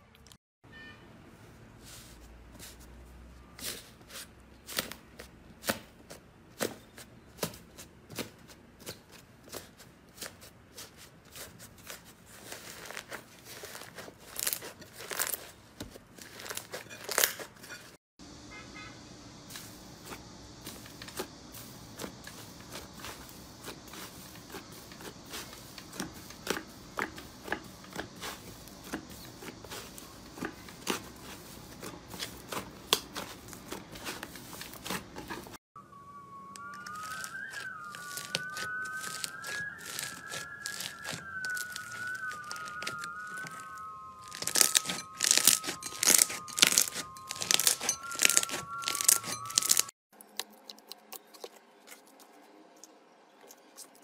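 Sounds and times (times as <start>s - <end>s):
slime crackling and popping: 12.4s - 15.5s, 36.6s - 51.5s.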